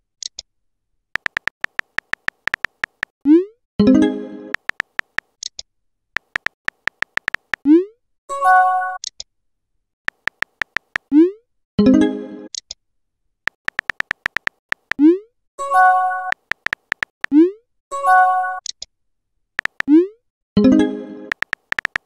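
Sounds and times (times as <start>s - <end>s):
keyboard tap clicks: 1.2s - 3.1s, 4.6s - 5.3s, 6.2s - 7.6s, 10.1s - 11.1s, 13.5s - 15.0s, 16.3s - 17.3s, 19.6s - 19.9s, 21.3s - 22.0s.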